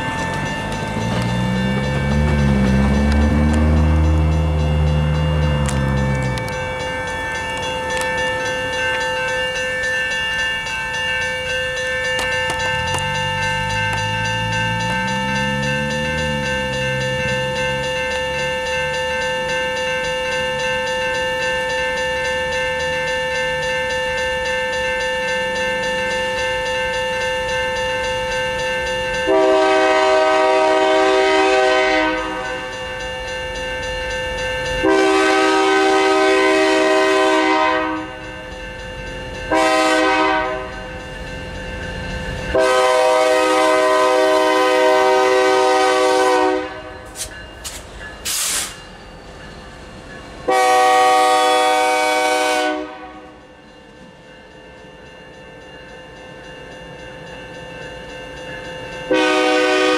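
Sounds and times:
crossing warning bell ringing: 0.0 - 59.9
locomotive air horn blasts: 29.3 - 32.7, 34.8 - 38.1, 39.5 - 40.7, 42.5 - 46.9, 50.5 - 53.4, 59.1 - 59.9.

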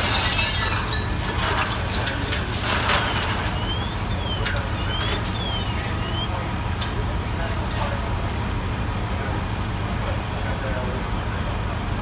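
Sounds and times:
engines rumbling: 0.0 - 12.0
faint high whistle: 3.1 - 6.4.

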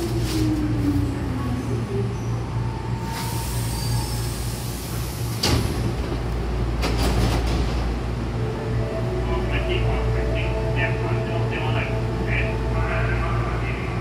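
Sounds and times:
pneumatic doors opening: 3.0 - 6.0.

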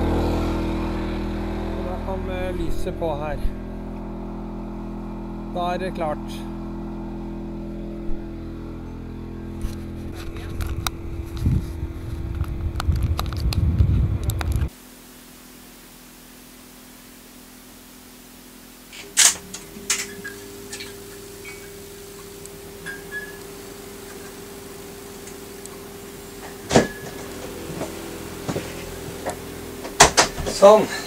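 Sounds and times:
low uneven rumble: 0.0 - 14.7
generator engine running: 0.0 - 14.9, 16.0 - 31.0
room hum: 0.0 - 31.0.

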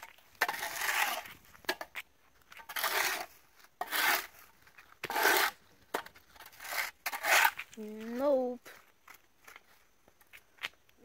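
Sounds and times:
shovel scraping road surface: 0.0 - 8.5.

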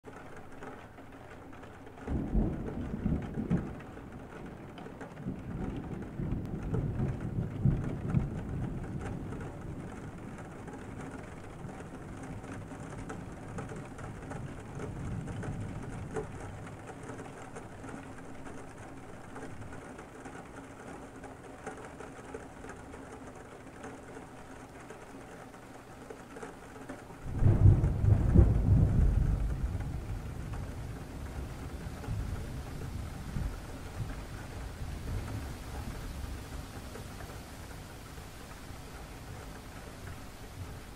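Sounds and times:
steady rain: 0.0 - 40.9
thunder rumbling: 2.1 - 19.7, 27.2 - 40.9.

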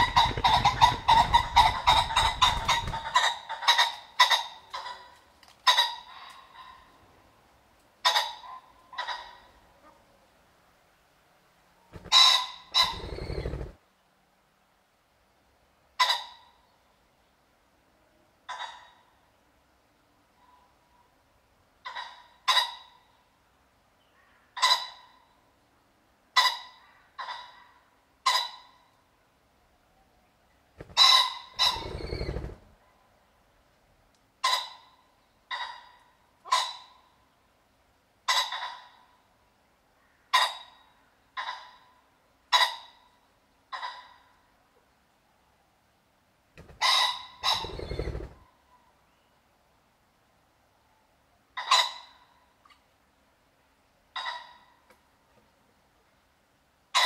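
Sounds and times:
pheasant calling: 0.0 - 5.1, 11.9 - 13.8, 30.8 - 32.8, 46.6 - 48.9
pheasant cackling: 0.0 - 7.0, 8.0 - 10.0, 11.9 - 13.8, 16.0 - 16.5, 21.8 - 23.0, 24.6 - 25.2, 26.3 - 28.8, 30.8 - 32.8, 34.4 - 37.1, 38.2 - 39.1, 40.0 - 41.9, 42.5 - 43.0, 43.7 - 44.3, 46.6 - 48.4, 51.6 - 52.3, 54.1 - 54.8.

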